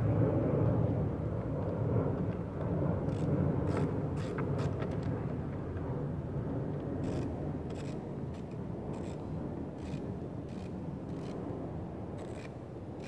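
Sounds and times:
low steady rumble: 0.0 - 13.0
screwdriver clicks and scrapes: 7.0 - 9.2, 9.8 - 11.4, 12.2 - 12.5.

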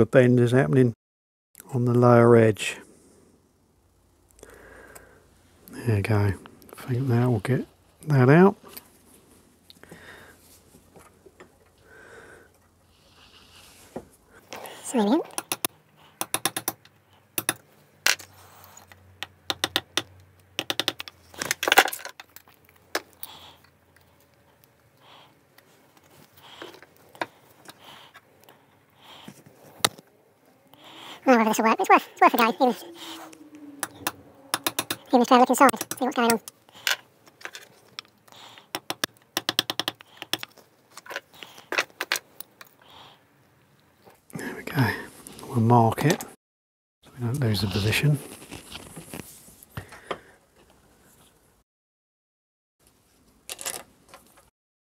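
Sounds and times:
metal tool clicking and tapping: 15.3 - 17.6, 19.2 - 21.1, 33.8 - 35.1, 35.7 - 36.6, 38.7 - 40.5
small hard objects clicking: 19.2 - 23.2, 33.8 - 35.1, 35.7 - 40.6.

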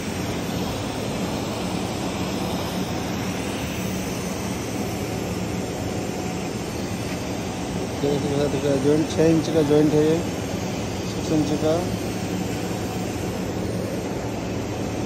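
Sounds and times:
welding torch hissing: 0.0 - 15.0.

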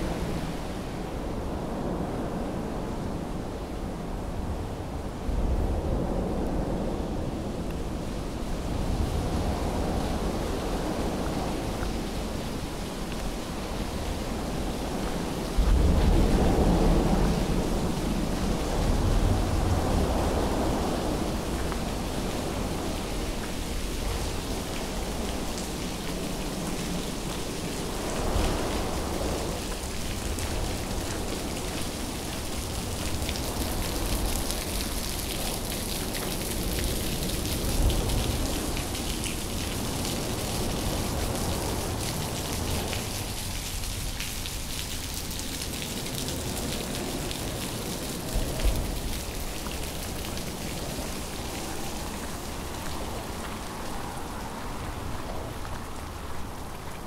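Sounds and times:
heavy rain hissing: 6.6 - 57.0.

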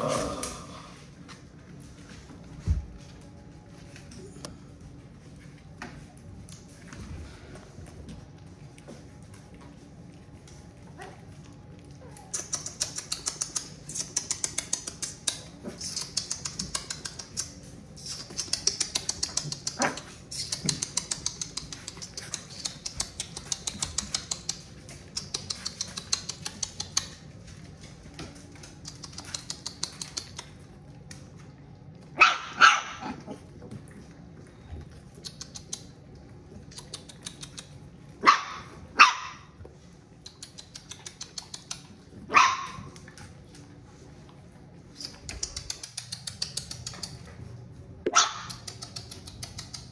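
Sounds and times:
dog barking: 32.2 - 33.2, 38.2 - 39.5, 42.3 - 43.0, 48.1 - 48.6.

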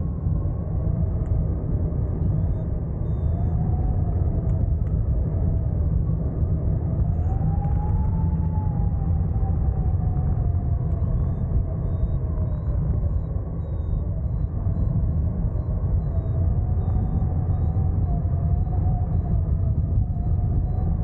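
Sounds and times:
steady humming tone: 0.0 - 21.0
wind buffeting microphone: 0.0 - 21.0.

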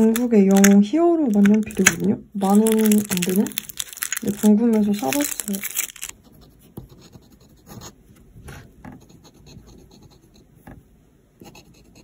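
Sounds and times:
fountain pen scratching on paper: 6.2 - 8.0, 8.9 - 10.5.

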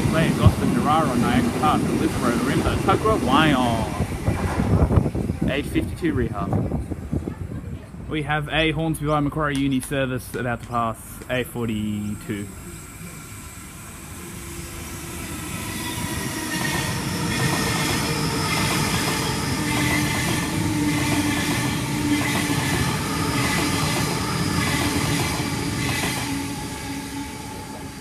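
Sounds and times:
electric train whine: 0.0 - 7.2, 10.7 - 28.0
train wheels clattering on rails: 15.8 - 27.0.

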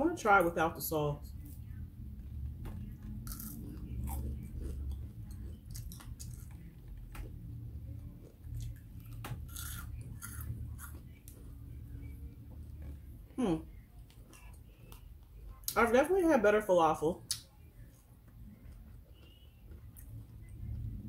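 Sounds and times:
crisp crunches of chewing: 3.0 - 7.0, 8.2 - 11.4.

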